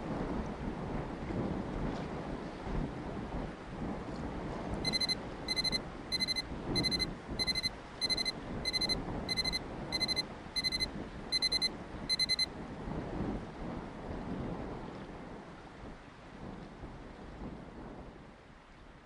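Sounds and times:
outdoor wind and water: 0:00.0 - 0:19.0
timer alarm beeping: 0:04.8 - 0:12.5.

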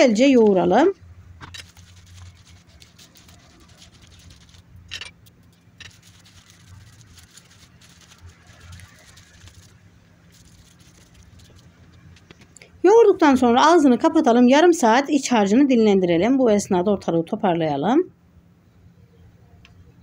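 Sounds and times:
low steady hum: 0:00.0 - 0:20.0
fingers rustling on leaves: 0:01.5 - 0:11.8.

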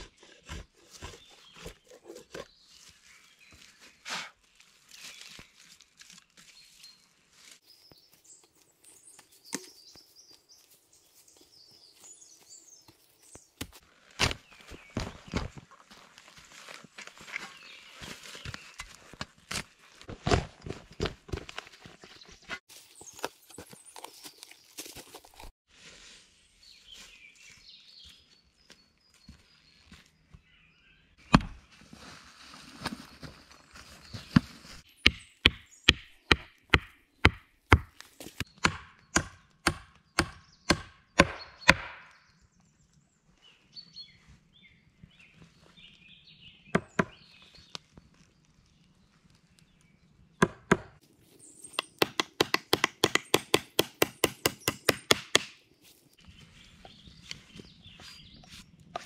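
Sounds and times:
hatchet chopping wood: 0:35.0 - 0:42.2, 0:46.7 - 0:47.2, 0:50.4 - 0:51.0, 0:51.8 - 0:55.6.

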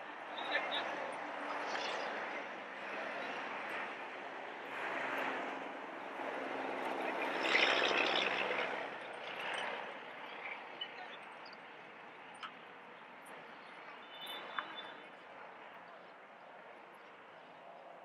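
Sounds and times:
engine passing by: 0:00.5 - 0:10.8.

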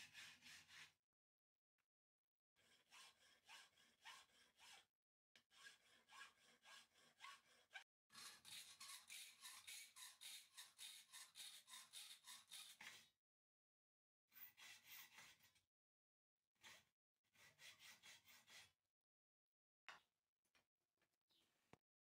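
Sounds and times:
hacksaw cutting metal: 0:05.4 - 0:13.1.

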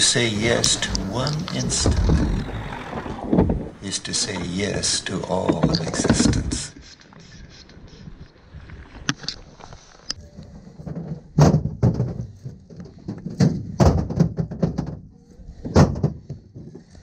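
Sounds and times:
knocks and thumps: 0:00.4 - 0:06.7, 0:10.8 - 0:17.0.

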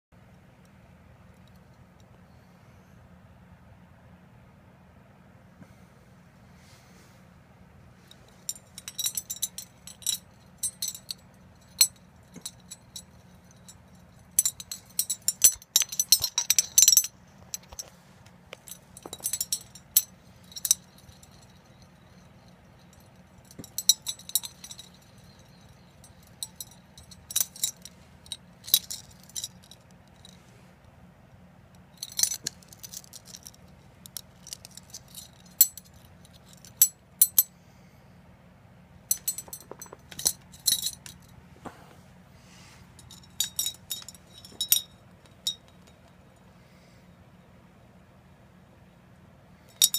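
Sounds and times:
metal lure parts clinking: 0:08.1 - 0:17.9, 0:18.5 - 0:30.4, 0:32.0 - 0:37.5, 0:39.1 - 0:41.4, 0:42.9 - 0:46.2, 0:49.7 - 0:49.9.

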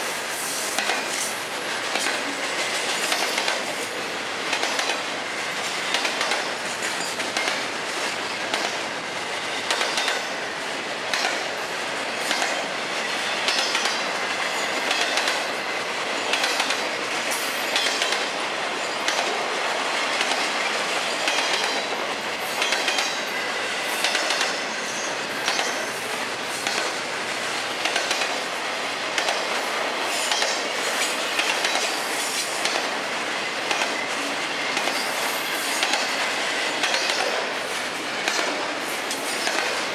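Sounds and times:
train wheels rumbling on rail: 0:00.0 - 0:39.9
wheels clicking over rail joints: 0:00.7 - 0:08.9, 0:09.6 - 0:10.4, 0:11.0 - 0:11.6, 0:12.2 - 0:15.6, 0:16.2 - 0:19.5, 0:21.2 - 0:23.3, 0:25.4 - 0:27.0, 0:27.6 - 0:28.4, 0:29.1 - 0:33.0, 0:33.6 - 0:37.5, 0:38.2 - 0:39.9.

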